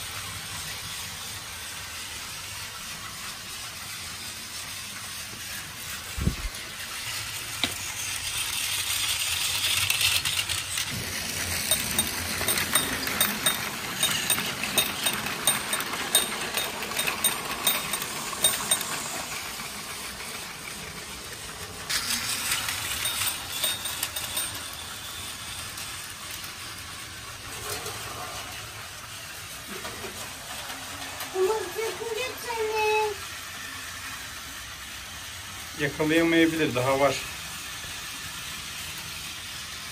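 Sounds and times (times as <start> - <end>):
toy train motor whirring: 0.0 - 39.9
train rattling over track joints: 7.0 - 33.1.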